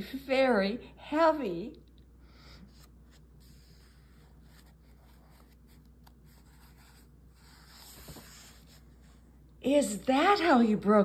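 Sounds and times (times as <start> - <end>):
paper page rustling: 2.7 - 9.2.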